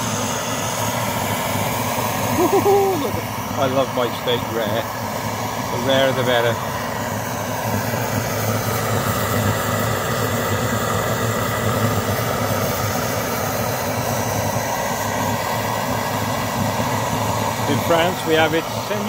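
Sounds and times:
pressure stove burner roaring: 0.0s - 19.0s.

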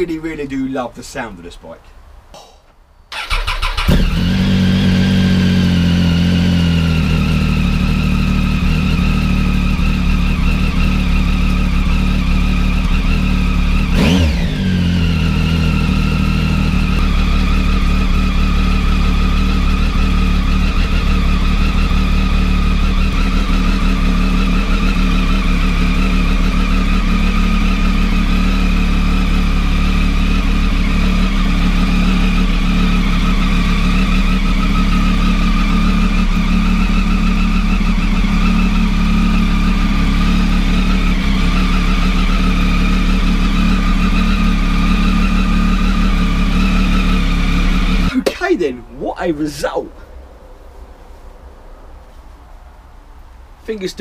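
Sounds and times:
motorcycle engine idling: 3.1s - 48.5s
engine rev blip: 9.8s - 22.2s, 22.8s - 52.4s.

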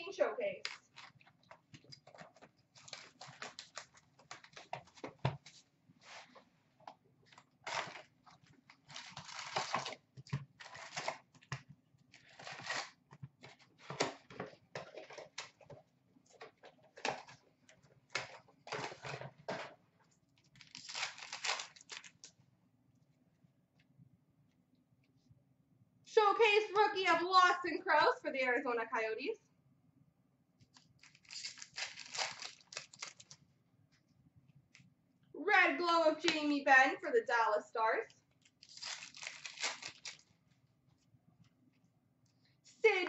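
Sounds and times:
card packs tearing and crinkling: 2.7s - 5.0s, 8.8s - 10.0s, 10.6s - 11.4s, 12.2s - 13.0s, 20.6s - 22.3s, 31.0s - 33.4s, 38.6s - 40.3s.

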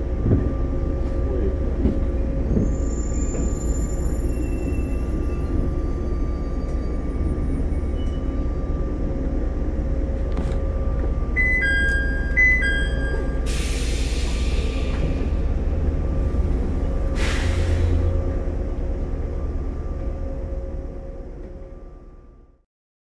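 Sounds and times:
train equipment humming: 0.0s - 22.6s
two-note electronic chime: 11.4s - 13.5s.

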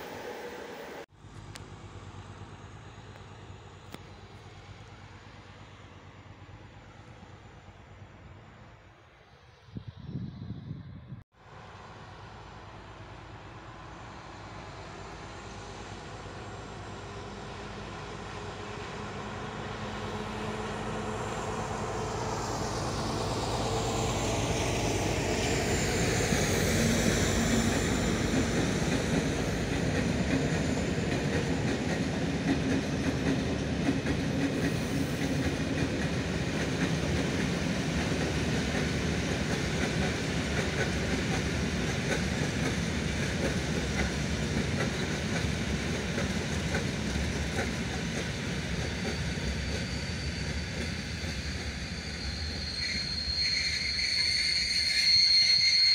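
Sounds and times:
diesel locomotive engine running: 0.0s - 8.4s, 11.5s - 52.5s
train wheels clickety-clack on rails: 15.0s - 53.4s
high wheel squeal: 22.3s - 31.6s, 48.5s - 55.9s.

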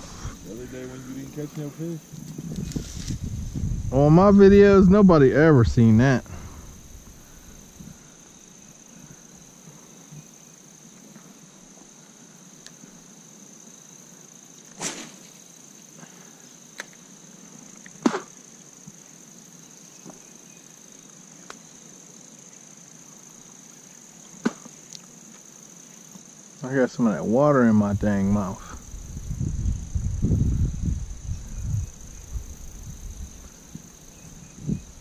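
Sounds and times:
insect drone: 0.0s - 35.0s
fishing rod cast whoosh: 14.8s - 15.3s.

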